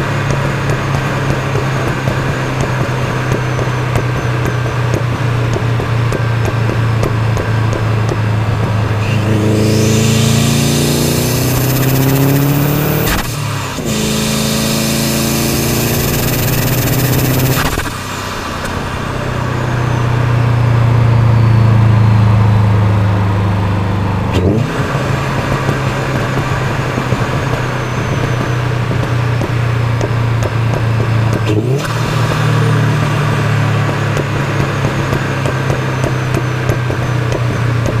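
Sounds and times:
car exhaust note: 0:00.0 - 0:38.0
wind rushing: 0:09.0 - 0:17.5.

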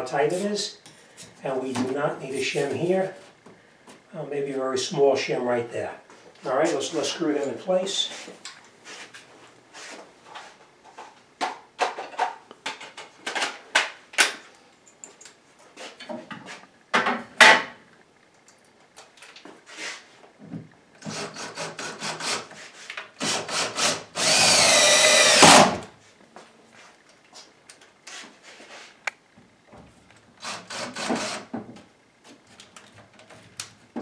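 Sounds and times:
cordless drill driving screw: 0:23.2 - 0:25.8.

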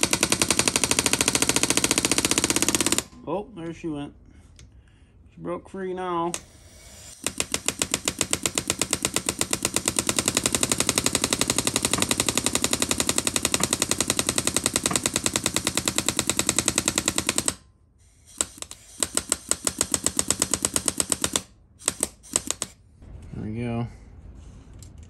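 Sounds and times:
power hammer metallic blows: 0:07.0 - 0:17.6.

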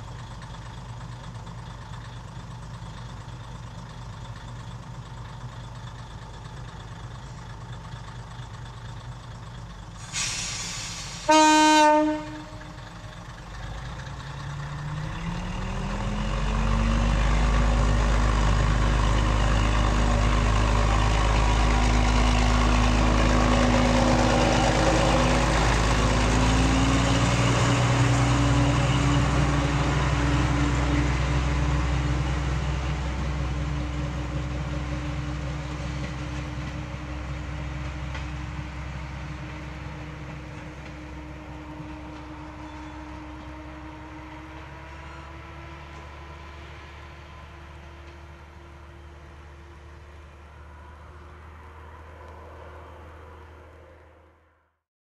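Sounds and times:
diesel railcar engine: 0:00.0 - 0:54.6
air hiss: 0:10.0 - 0:11.3
train horn blast: 0:11.2 - 0:12.8.

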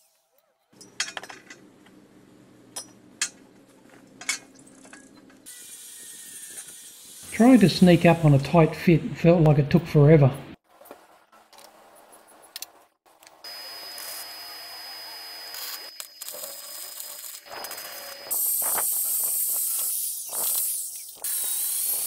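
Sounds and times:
arc welding crackling hiss: 0:05.5 - 0:08.4, 0:13.4 - 0:22.0.

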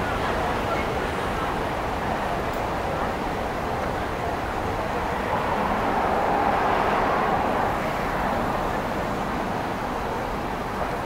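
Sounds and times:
city street traffic: 0:00.0 - 0:11.0
vehicle passing: 0:04.6 - 0:09.8.

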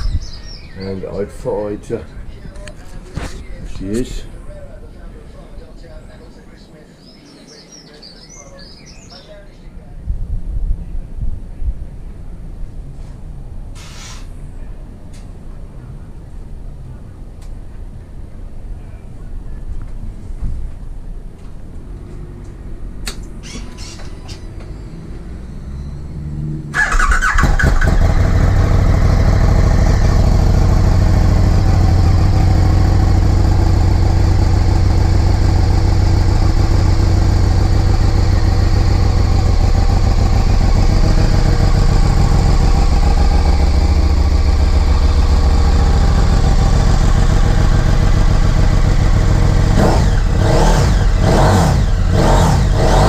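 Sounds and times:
motorcycle engine idling: 0:26.8 - 0:53.0.

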